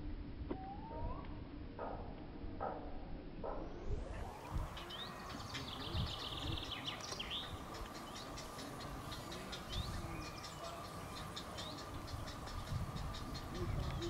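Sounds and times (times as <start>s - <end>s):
bird trill: 0.6s - 1.9s, 4.1s - 14.0s
birds chirping: 2.6s - 14.0s.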